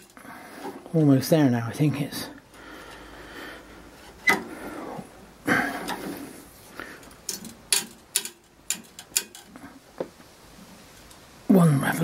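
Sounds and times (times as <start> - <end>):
tube cutter blade creaking: 4.0 - 4.6.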